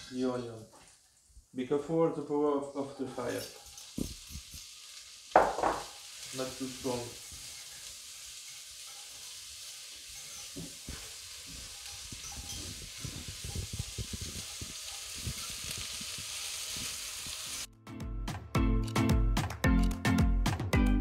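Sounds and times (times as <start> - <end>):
onions sizzling in butter: 0.0 - 17.7
stirring knocks and rustles: 3.0 - 16.5
loud music with steady beat: 17.8 - 21.0.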